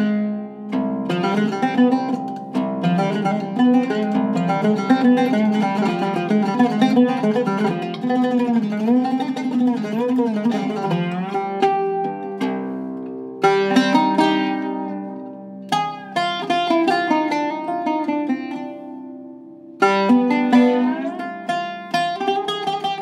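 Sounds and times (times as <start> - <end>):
oud playing plucked melody: 0.0 - 23.0.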